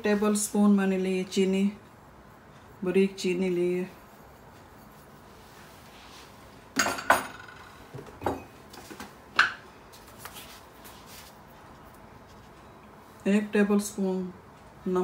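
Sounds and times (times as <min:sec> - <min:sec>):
dishes clinking on countertop: 0:06.8 - 0:08.6.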